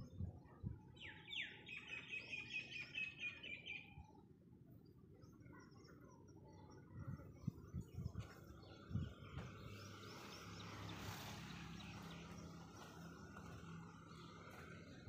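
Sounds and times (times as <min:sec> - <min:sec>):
small bird singing: 0:00.0 - 0:15.0
footsteps on dry dirt: 0:08.2 - 0:15.0.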